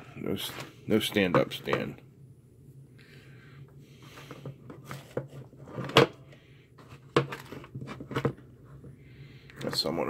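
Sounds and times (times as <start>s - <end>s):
plastic handling clicks and knocks: 6.8s - 8.5s.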